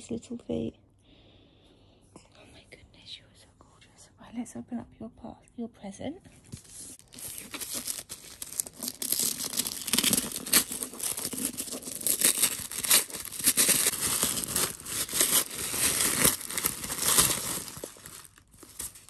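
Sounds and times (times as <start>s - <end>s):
tissue paper crinkling and tearing: 6.6s - 19.0s.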